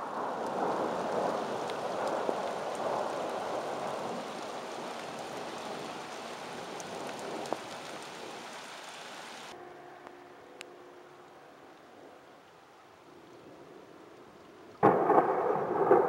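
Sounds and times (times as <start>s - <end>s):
heavy rain falling: 0.0s - 9.6s, 14.8s - 16.0s.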